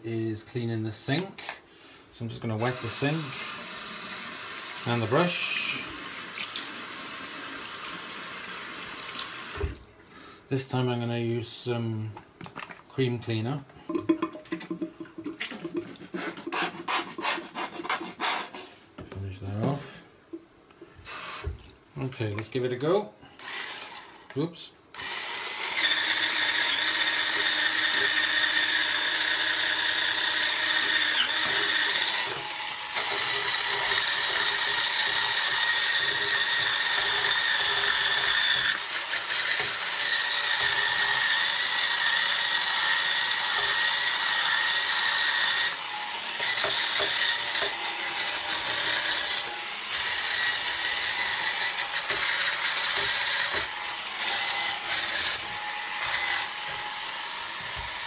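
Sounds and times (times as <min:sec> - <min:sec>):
brush scrubbing a ceramic sink: 0:14.7 - 0:18.2
electric scrubber motor whining: 0:25.0 - 0:58.0.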